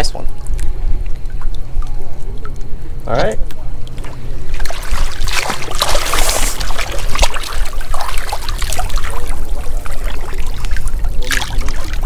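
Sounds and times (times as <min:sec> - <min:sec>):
steady low rumble: 0:00.0 - 0:12.0
water splashing: 0:03.5 - 0:12.0.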